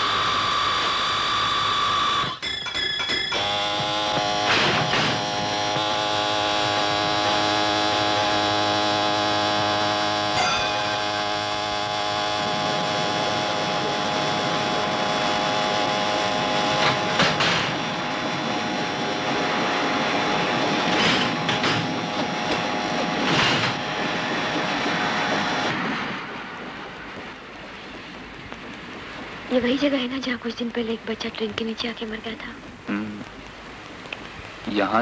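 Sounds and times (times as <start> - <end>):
train drone: 0.0 - 31.3
train rushing: 3.3 - 13.6, 15.2 - 28.4.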